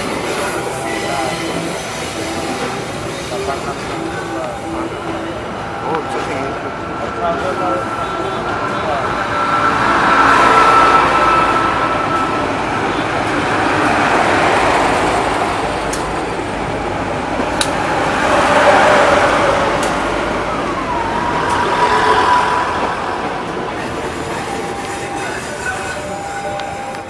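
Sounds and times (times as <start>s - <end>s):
high wheel squeal: 0.0s - 14.9s, 20.6s - 27.0s
train coaches rumbling past: 0.0s - 27.0s.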